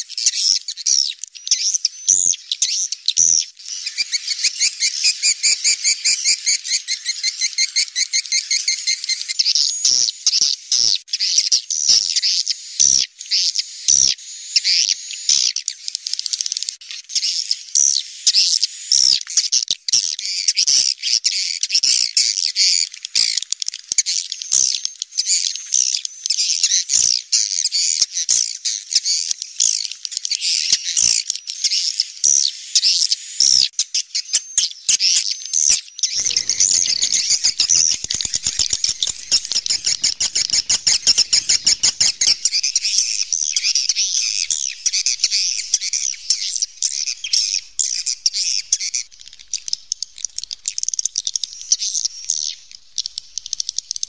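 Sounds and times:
fast run of clicks: 0:36.2 - 0:46.1
swiftlets twittering: 0:36.2 - 0:49.0.

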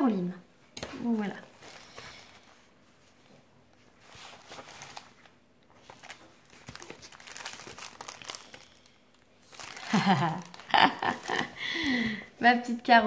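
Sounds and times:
paper and plastic rustling: 0:00.8 - 0:11.6.

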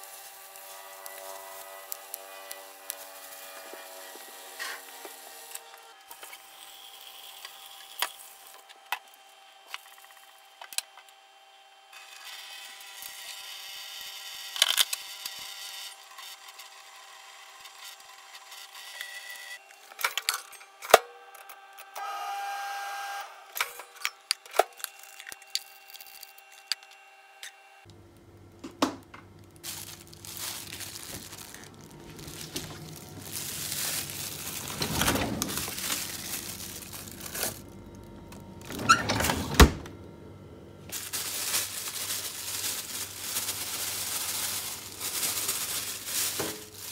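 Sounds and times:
plastic bag rustling: 0:00.0 - 0:06.8, 0:29.4 - 0:39.6, 0:40.9 - 0:46.9.

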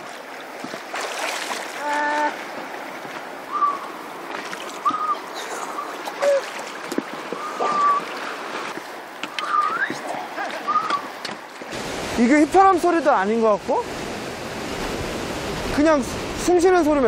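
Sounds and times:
sea water lapping and splashing: 0:00.0 - 0:16.5
high whistling exhalations: 0:03.5 - 0:03.9, 0:04.8 - 0:06.5, 0:07.4 - 0:08.1.

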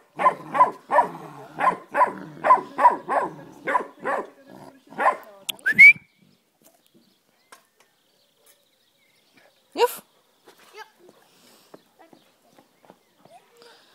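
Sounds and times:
dog barking playfully: 0:00.2 - 0:04.3, 0:05.0 - 0:05.2.

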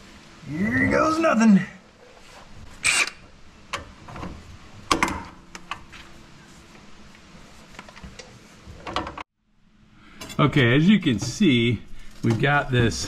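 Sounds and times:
faint steady hum: 0:00.0 - 0:13.0
power tool motor spinning: 0:02.8 - 0:03.2.

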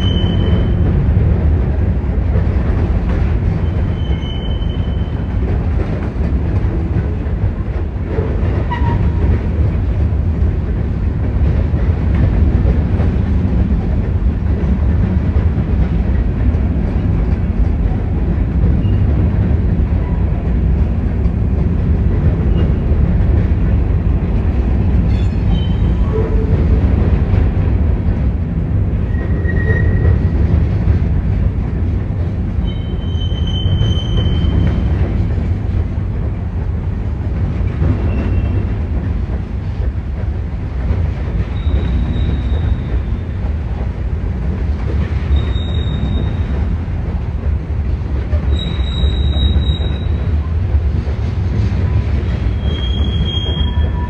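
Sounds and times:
train wheels squealing: 0:00.0 - 0:00.9, 0:03.6 - 0:05.4, 0:08.7 - 0:09.2, 0:18.8 - 0:19.2, 0:25.1 - 0:26.6, 0:29.1 - 0:30.3, 0:32.6 - 0:35.0, 0:37.9 - 0:38.7, 0:41.3 - 0:43.4, 0:45.2 - 0:46.6, 0:48.4 - 0:50.3, 0:52.3 - 0:54.0
freight train cars rumbling: 0:00.0 - 0:54.0.

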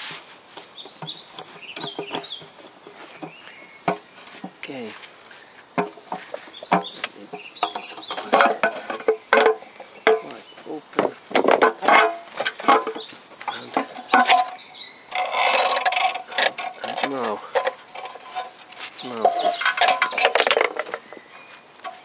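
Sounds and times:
metal scraping: 0:11.6 - 0:21.1.

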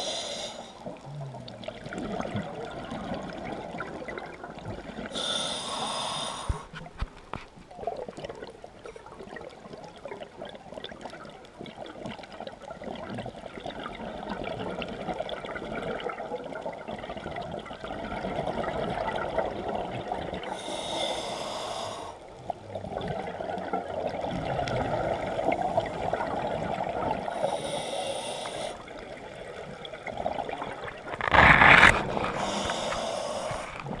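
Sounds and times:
diver inhaling through regulator: 0:00.0 - 0:00.9, 0:05.1 - 0:06.8, 0:20.5 - 0:22.2, 0:27.3 - 0:28.9, 0:31.9 - 0:34.0
exhaled bubbles bursting: 0:00.9 - 0:05.1, 0:07.7 - 0:20.5, 0:22.5 - 0:27.4, 0:28.8 - 0:34.0.

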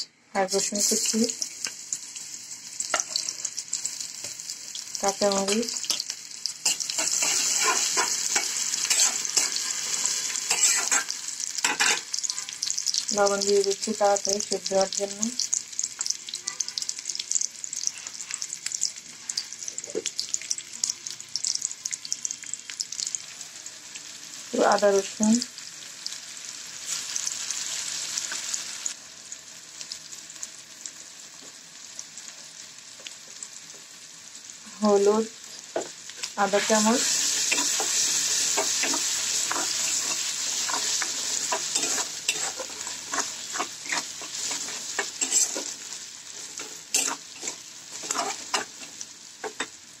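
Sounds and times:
vegetables sizzling in hot oil: 0:00.0 - 0:50.0
metal spatula scraping a pan: 0:05.5 - 0:12.5, 0:36.5 - 0:49.7.

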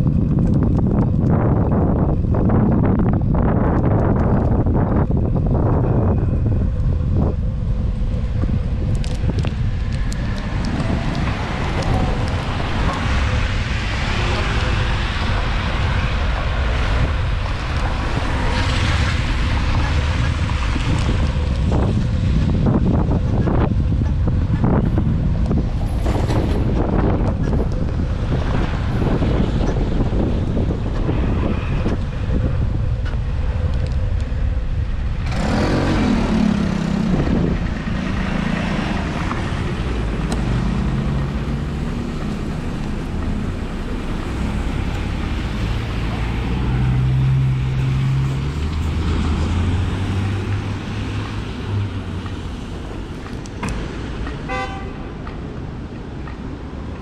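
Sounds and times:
low engine hum: 0:00.0 - 0:57.0
wind rumbling on microphone: 0:00.0 - 0:57.0
motor vehicle passing close: 0:06.6 - 0:54.2
tyres hissing on wet road: 0:09.6 - 0:22.4, 0:35.3 - 0:55.2.

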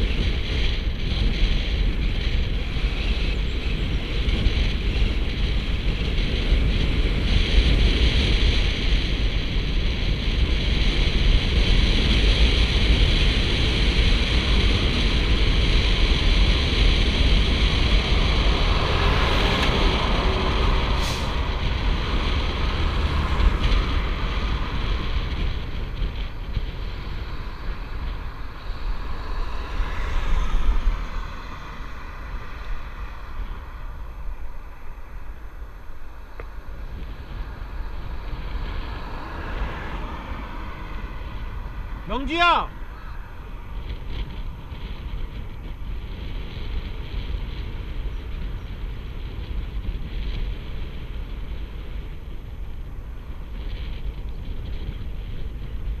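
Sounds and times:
road and tyre noise: 0:00.0 - 0:56.0
wind buffeting microphone: 0:00.0 - 0:56.0
car passing: 0:15.4 - 0:47.6.

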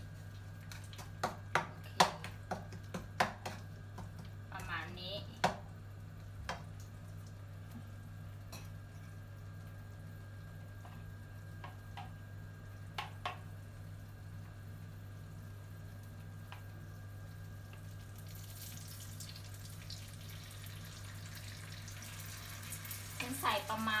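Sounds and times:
paste sizzling in oil: 0:18.2 - 0:24.0.

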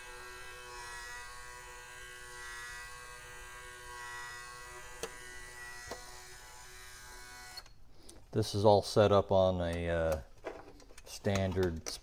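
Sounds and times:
gearmotor buzzing whine: 0:00.0 - 0:07.8.

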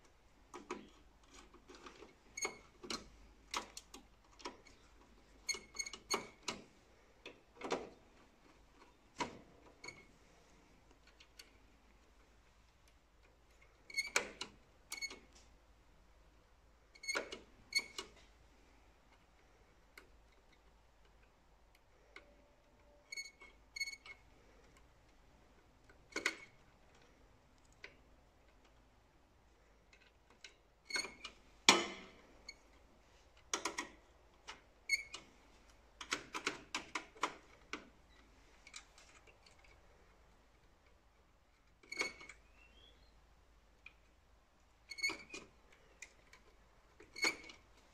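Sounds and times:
screwdriver clicks and taps on metal: 0:33.4 - 0:34.6, 0:36.0 - 0:37.9.

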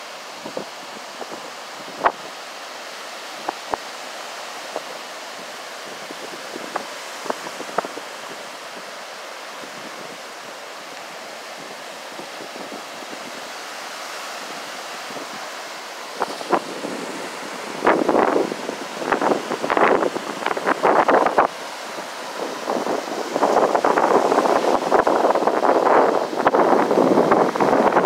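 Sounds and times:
wind on microphone: 0:00.0 - 0:02.5, 0:03.2 - 0:28.0
ocean surf breaking: 0:00.0 - 0:28.0.

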